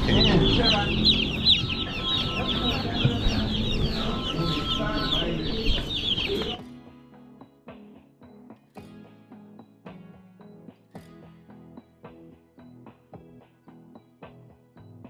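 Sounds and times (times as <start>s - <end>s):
chickens chirping: 0.0s - 6.6s.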